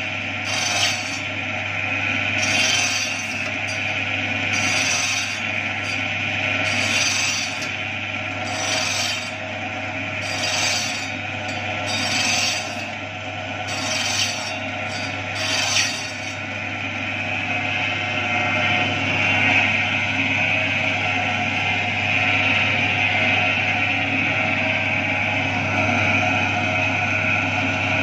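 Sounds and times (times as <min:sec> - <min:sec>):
machine motor hum: 0:00.0 - 0:28.0
blade chopping wooden dowel: 0:02.4 - 0:04.0, 0:13.8 - 0:16.4.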